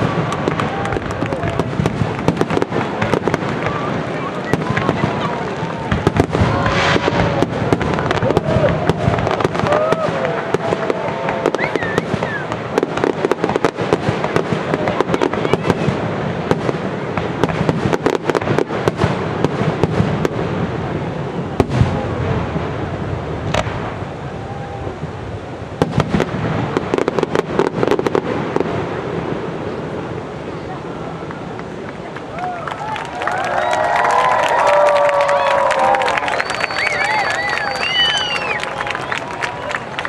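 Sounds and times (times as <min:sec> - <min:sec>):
fireworks bursting and crackling: 0:00.0 - 0:40.0.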